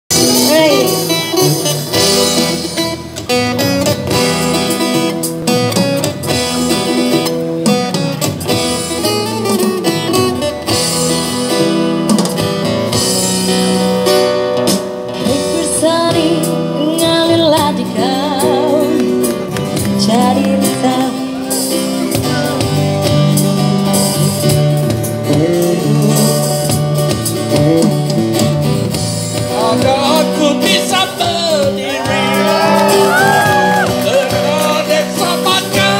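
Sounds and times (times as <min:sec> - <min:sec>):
acoustic guitar: 0:00.1 - 0:35.9
woman singing into a microphone: 0:15.2 - 0:21.6.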